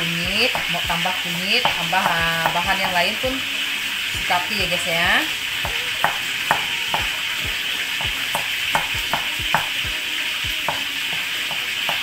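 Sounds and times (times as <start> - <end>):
rain hissing: 0.0 - 12.0
cleaver chopping on wooden block: 8.0 - 9.7.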